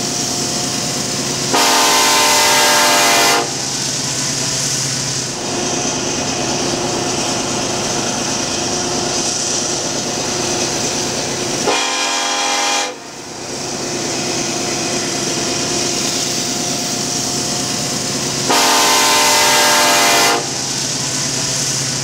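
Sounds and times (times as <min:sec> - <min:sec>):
diesel locomotives rumbling past: 0:00.0 - 0:22.0
locomotive air horn: 0:01.5 - 0:03.6, 0:11.6 - 0:13.0, 0:18.5 - 0:20.6.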